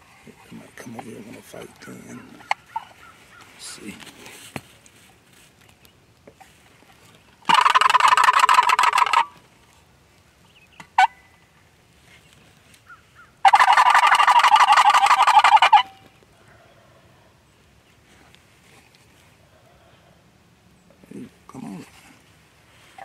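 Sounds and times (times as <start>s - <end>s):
turkey gobble call: 1.8s - 3.6s, 7.4s - 9.4s, 10.8s - 11.6s, 12.8s - 17.4s.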